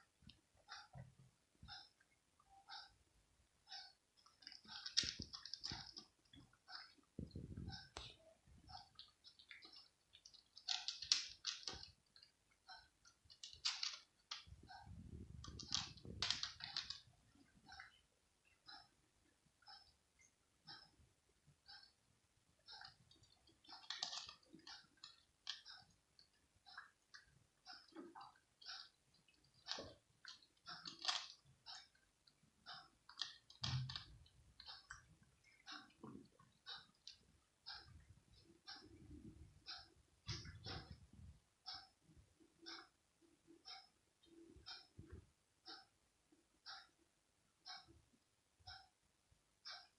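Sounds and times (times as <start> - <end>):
cat crunching dry kibble: 4.4 - 6.0, 9.0 - 11.9, 13.3 - 14.5, 15.4 - 17.0, 23.8 - 25.6, 29.7 - 31.4.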